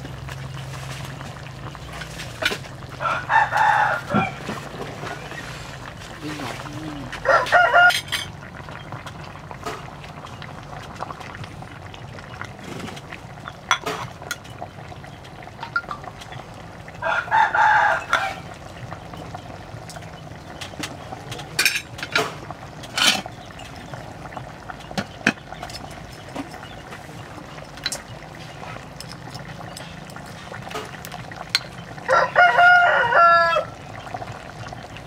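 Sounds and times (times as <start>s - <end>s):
rooster crowing: 2.9s - 4.6s, 7.2s - 8.1s, 17.0s - 18.5s, 32.1s - 33.8s.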